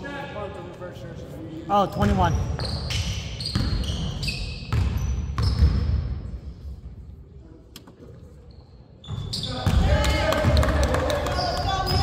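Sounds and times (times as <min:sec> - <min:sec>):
sneakers squeaking: 0:01.9 - 0:06.2, 0:08.1 - 0:10.1, 0:11.2 - 0:12.0
basketball bouncing on wooden floor: 0:03.5 - 0:04.0, 0:04.7 - 0:06.0.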